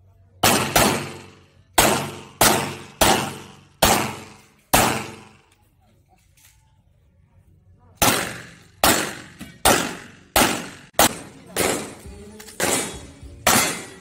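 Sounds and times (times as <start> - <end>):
pistol shots with echo: 0.4 - 5.5, 8.0 - 14.0.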